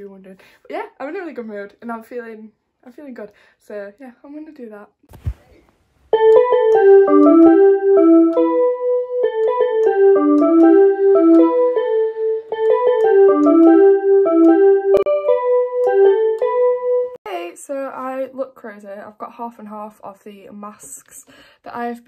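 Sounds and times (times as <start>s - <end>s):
electronic keyboard melody: 6.1s - 17.2s.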